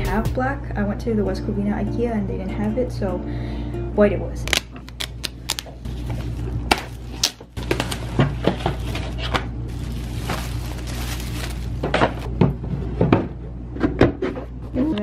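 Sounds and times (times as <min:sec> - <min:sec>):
plastic wrap crinkling: 0:04.5 - 0:12.3.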